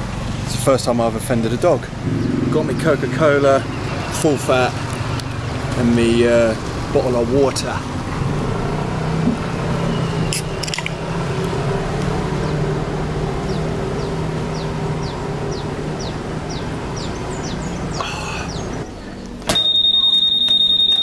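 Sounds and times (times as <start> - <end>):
short high chirps: 19.5 - 21.0.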